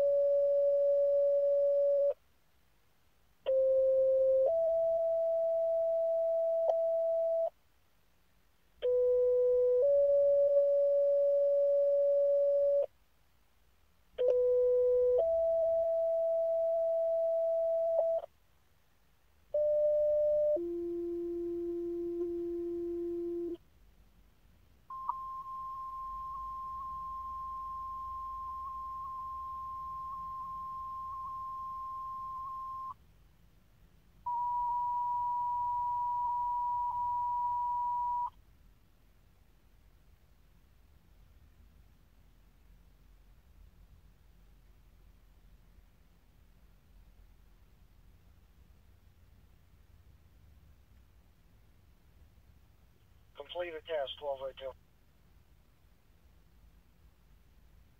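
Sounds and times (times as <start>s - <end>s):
long steady high tone: 24.9s - 33.0s
two-tone pager alert beeps: 24.9s - 33.0s, 34.3s - 38.3s.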